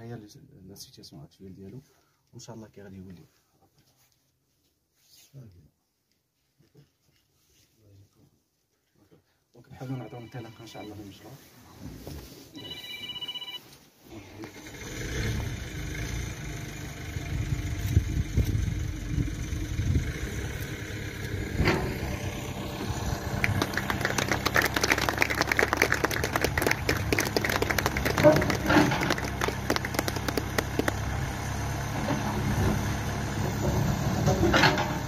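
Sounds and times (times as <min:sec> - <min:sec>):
diesel engine running: 0:14.5 - 0:35.0.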